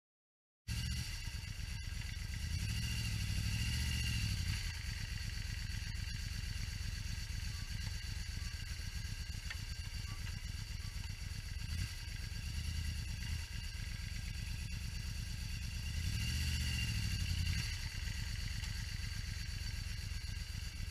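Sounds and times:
motorcycle engine idling: 0.7s - 20.9s.

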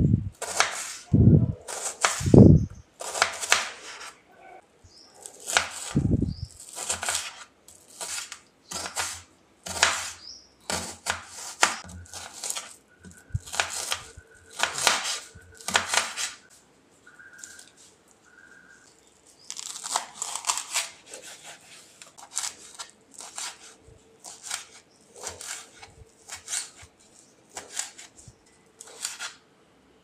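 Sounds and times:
knife chopping on cutting board: 6.7s - 7.4s, 8.0s - 12.7s, 13.4s - 16.4s, 19.8s - 26.9s, 27.5s - 28.1s, 28.8s - 29.4s.

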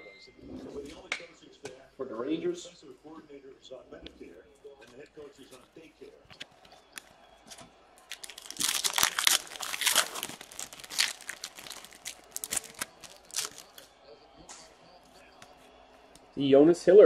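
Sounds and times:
card pack wrapper crinkling and tearing: 8.0s - 13.9s.

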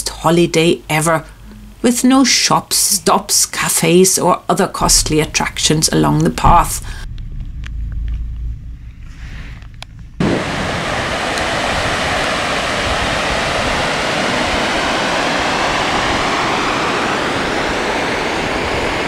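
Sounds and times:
wind buffeting microphone: 10.1s - 19.0s.

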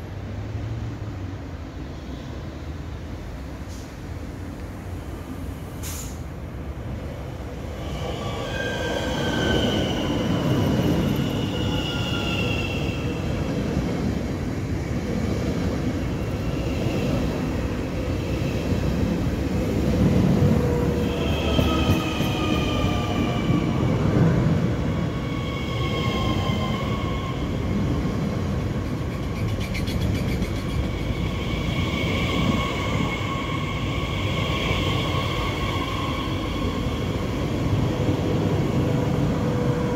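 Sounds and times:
wheels rumbling on track: 13.0s - 34.2s.

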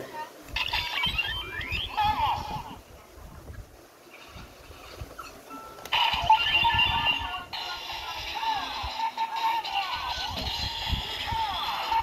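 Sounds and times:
toy belt electronic music: 0.6s - 2.5s, 5.9s - 12.0s.

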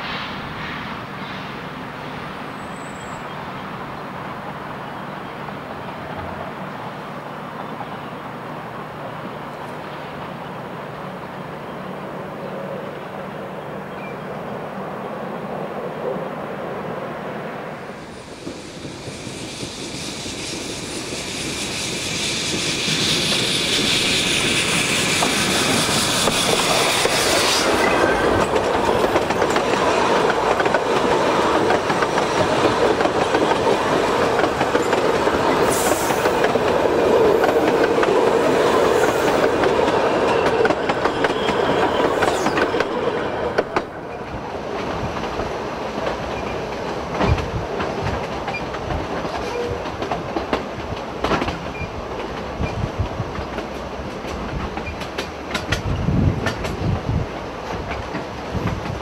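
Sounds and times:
steam train hiss: 17.9s - 49.5s
train carriages clattering on rails: 24.5s - 59.0s.

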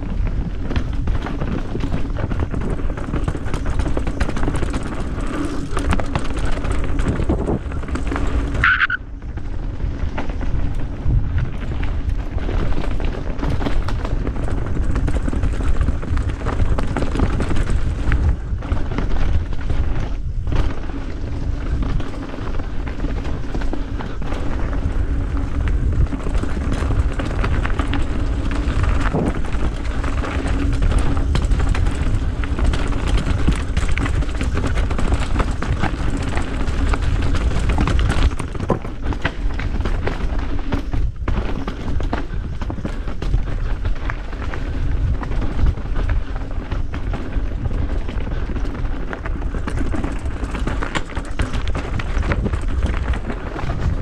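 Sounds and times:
high-pitched squeak: 8.6s - 9.0s.

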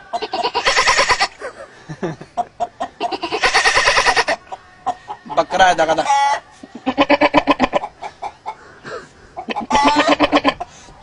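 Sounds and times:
man imitating goat bleats: 0.1s - 1.4s, 3.0s - 4.4s, 6.0s - 7.8s, 9.5s - 10.6s.

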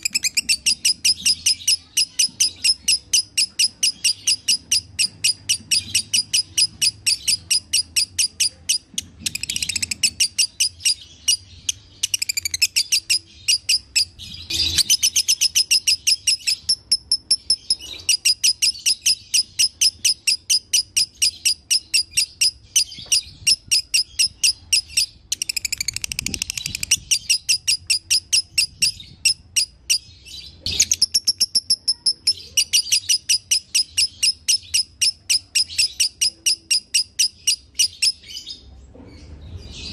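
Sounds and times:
lovebird singing shrill chirps: 0.0s - 38.6s.

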